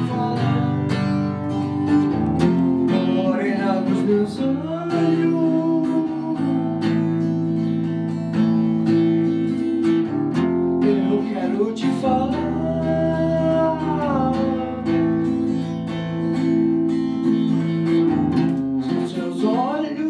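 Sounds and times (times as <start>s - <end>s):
man singing: 0.0s - 7.6s, 10.6s - 15.8s, 18.8s - 20.0s
acoustic guitar strumming: 0.0s - 20.0s.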